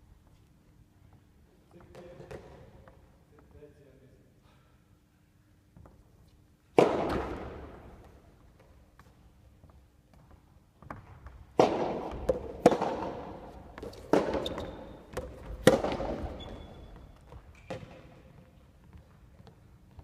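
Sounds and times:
racket hitting tennis ball: 6.7 - 8.3, 11.6 - 16.7
shoes squeaking on wooden floor: 13.8 - 18.0.

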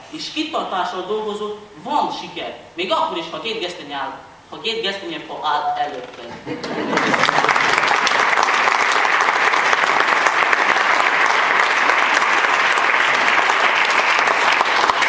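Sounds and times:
audience applauding: 6.5 - 15.0.

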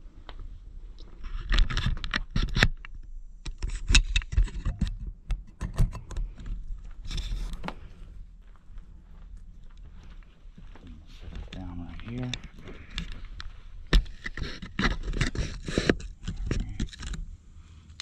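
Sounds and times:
scraping: 11.0 - 17.4.

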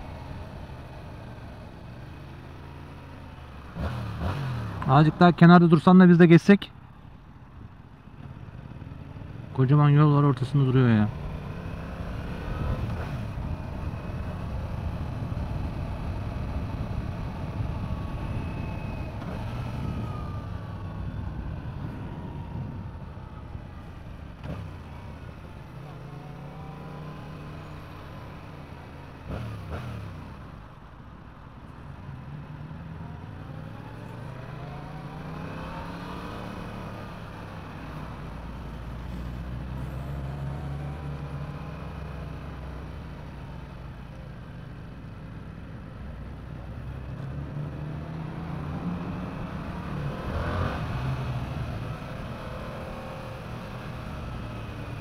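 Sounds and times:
motorcycle engine revving: 3.6 - 4.9, 29.2 - 30.4.

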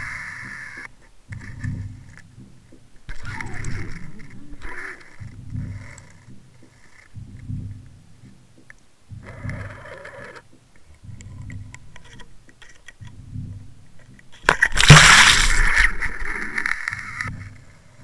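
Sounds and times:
water sloshing and rushing: 14.5 - 16.9
loud splash: 14.8 - 15.7.

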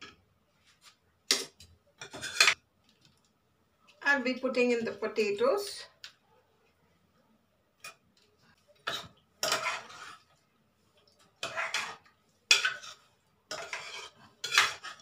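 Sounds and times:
metal spoon scraping metal pot: 2.0 - 2.6, 8.8 - 10.3, 11.4 - 15.0.

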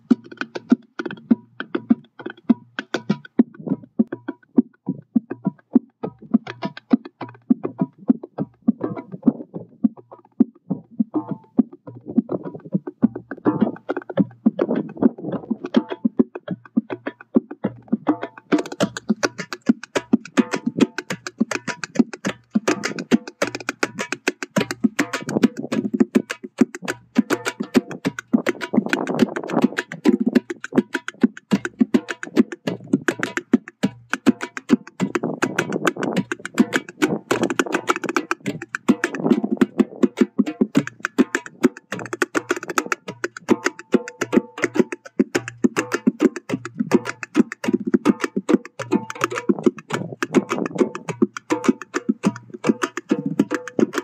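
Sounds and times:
hand drum fast rhythm: 0.0 - 54.0.

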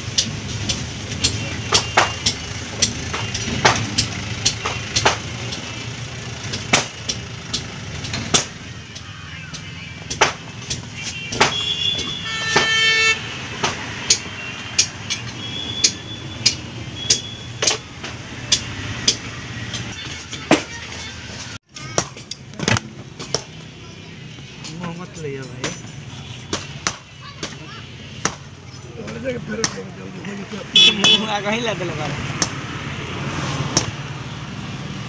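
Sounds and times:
low vehicle rumble: 0.0 - 11.0
pliers clicking on tyre rubber: 2.2 - 5.7
vehicle horn: 11.0 - 16.2, 30.7 - 31.3.

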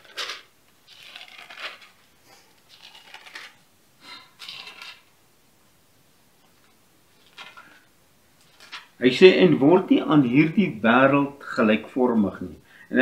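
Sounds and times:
thin pages turning and rustling: 0.0 - 2.0, 2.7 - 3.6, 6.5 - 7.8, 8.4 - 9.0.

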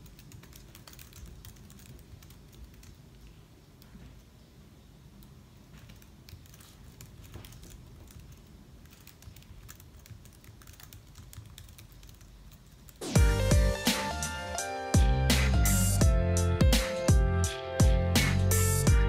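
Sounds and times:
typing on laptop keyboard: 0.0 - 3.9, 5.2 - 13.1
loud music with a beat: 13.0 - 19.0.

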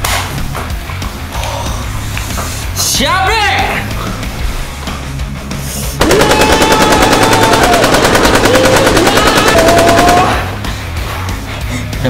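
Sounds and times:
machine-gun fire: 6.0 - 10.6.

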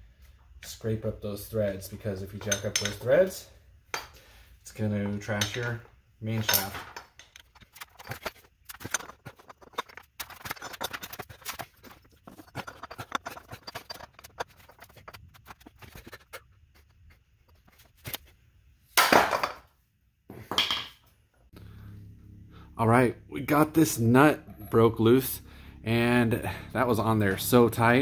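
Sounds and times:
steel clinking and knocking: 2.4 - 3.1, 5.2 - 16.2.

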